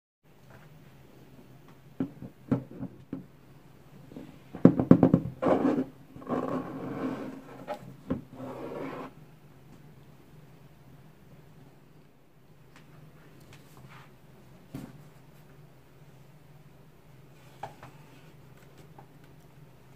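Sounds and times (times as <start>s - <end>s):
knocks on cardboard box: 4.6s - 5.4s
fingers scraping cardboard: 5.4s - 9.2s.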